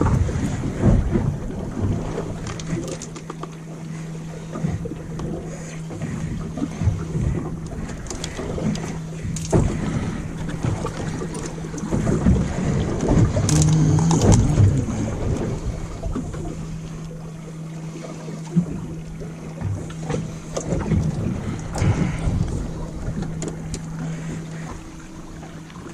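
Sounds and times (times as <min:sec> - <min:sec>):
boat engine idling: 0:00.0 - 0:25.9
knocks and rustling of fishing rig: 0:07.8 - 0:14.8
wind buffeting microphone: 0:08.6 - 0:16.6.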